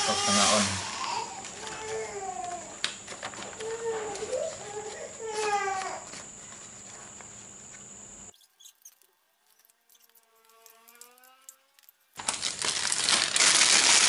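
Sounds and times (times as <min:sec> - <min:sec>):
steady hiss: 0:00.0 - 0:01.4
plastic bag crinkling: 0:02.8 - 0:04.6, 0:08.6 - 0:14.0.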